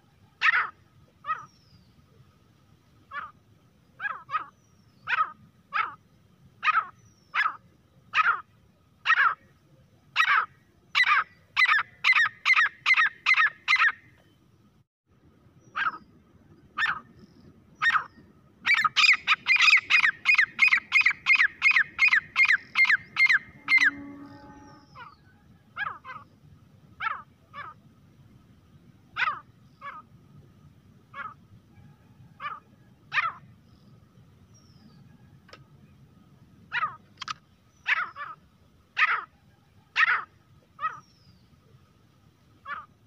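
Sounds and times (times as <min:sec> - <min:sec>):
francolin calling: 0:10.2 - 0:14.0, 0:15.6 - 0:26.4.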